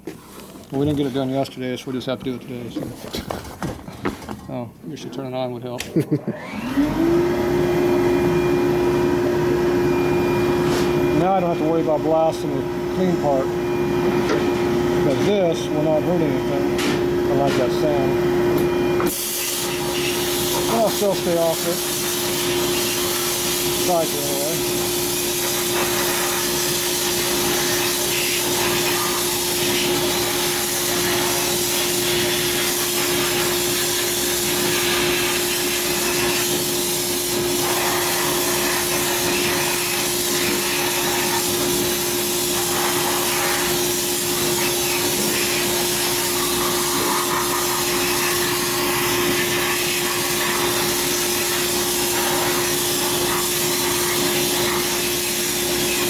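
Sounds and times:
blast nozzle hissing: 0:19.0 - 0:56.0.

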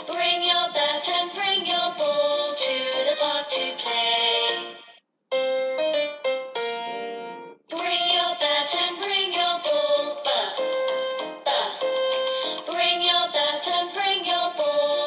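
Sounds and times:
children's song sung: 0:00.0 - 0:04.9, 0:07.7 - 0:15.0
keyboard backing: 0:00.0 - 0:13.9.

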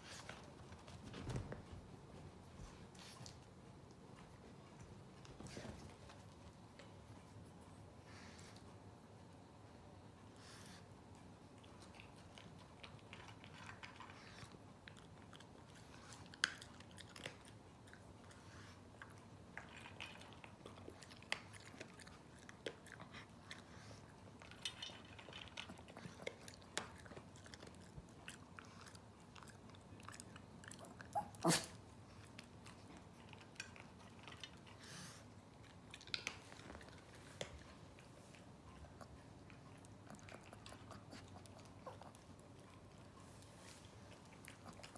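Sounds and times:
dog crunching kibble: 0:11.5 - 0:44.9.

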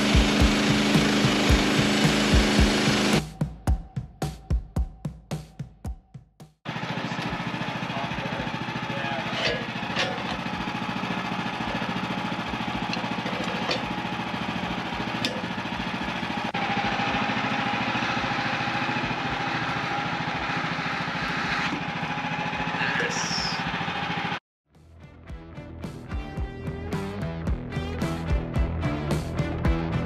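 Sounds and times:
bandsaw mill running: 0:00.0 - 0:03.2, 0:06.7 - 0:24.4
saw blade whining: 0:00.0 - 0:03.2, 0:06.7 - 0:24.4.

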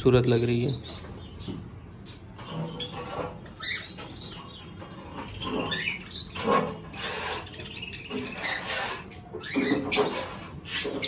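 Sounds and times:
finches chirping: 0:00.2 - 0:10.2.

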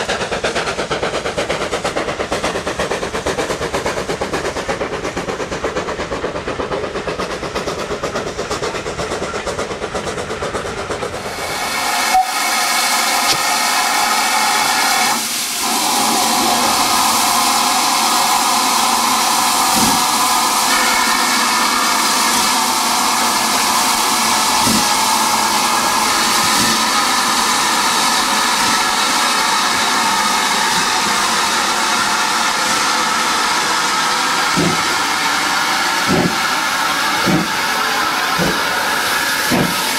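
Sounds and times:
distant steam train rumbling: 0:00.0 - 0:39.9
locomotive blowing off steam: 0:00.0 - 0:39.9.

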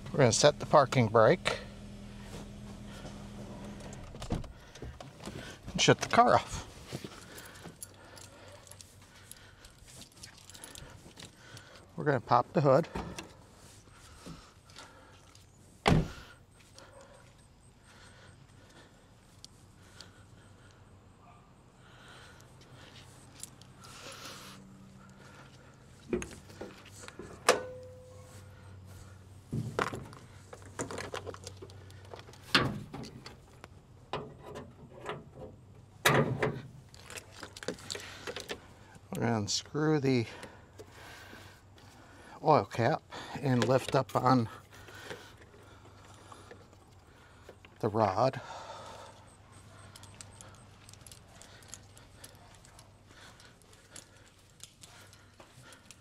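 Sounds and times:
keys jingling: 0:06.3 - 0:11.7, 0:49.1 - 0:56.0
hood and prop rod clanks: 0:29.5 - 0:41.0.

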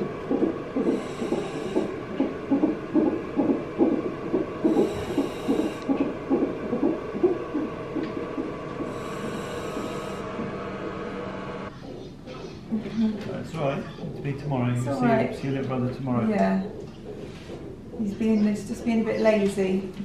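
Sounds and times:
doppler heartbeat pulsing: 0:00.0 - 0:11.0.

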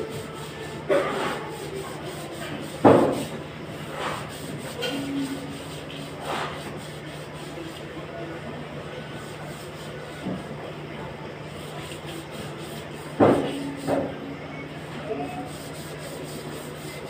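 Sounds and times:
rubbing and scraping on wall: 0:00.0 - 0:07.8, 0:11.5 - 0:14.1, 0:15.4 - 0:17.0.

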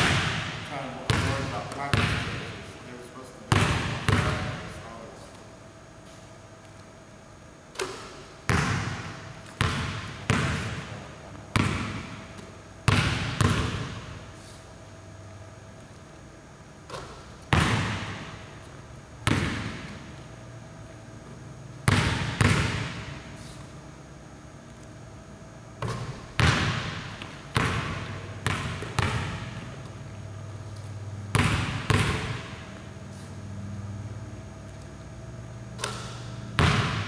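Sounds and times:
basketball bouncing on wooden floor: 0:00.0 - 0:02.4, 0:03.5 - 0:04.6, 0:07.8 - 0:14.2, 0:16.9 - 0:18.4, 0:19.2 - 0:20.1, 0:21.8 - 0:23.2, 0:25.8 - 0:30.0, 0:31.3 - 0:32.7, 0:35.8 - 0:37.0.

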